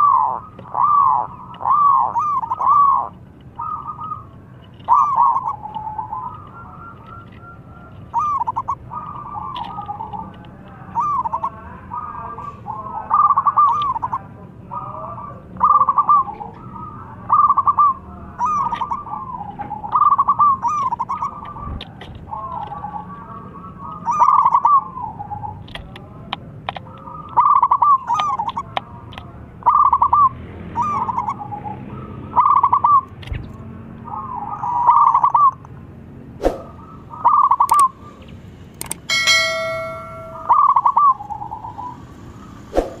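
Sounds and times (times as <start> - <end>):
dove cooing: 0.0 - 25.6, 26.8 - 28.8, 29.6 - 33.0, 34.1 - 35.6, 36.6 - 38.2, 39.1 - 43.0
bell-like chime: 39.1 - 40.8.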